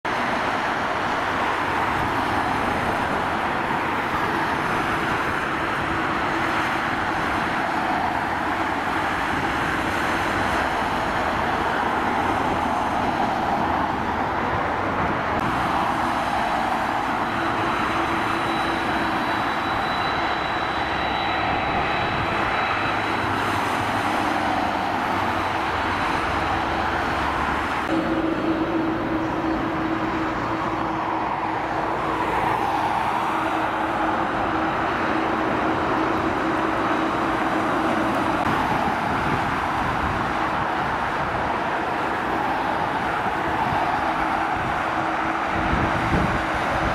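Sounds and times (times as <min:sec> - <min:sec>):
jet engines rumbling: 0:00.1 - 0:46.9
thin high whine: 0:15.4 - 0:39.3.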